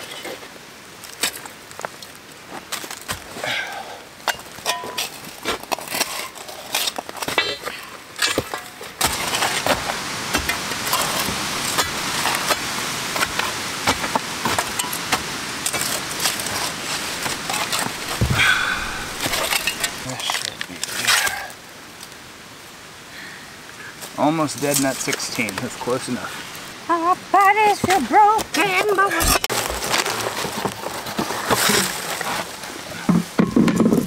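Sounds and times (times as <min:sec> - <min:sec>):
dirt dropping: 0:04.3 - 0:21.4
shovel scraping into soil: 0:04.7 - 0:21.5, 0:29.2 - 0:32.6
steady rushing noise: 0:09.8 - 0:20.2
stones clinking: 0:15.7 - 0:21.4.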